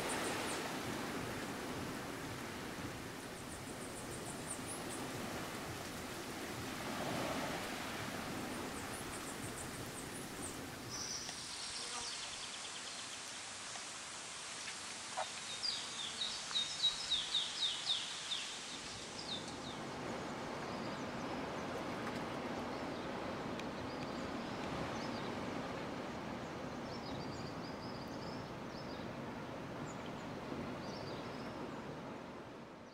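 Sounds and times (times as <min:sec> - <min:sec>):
steady background hiss: 0:00.0 - 0:21.7.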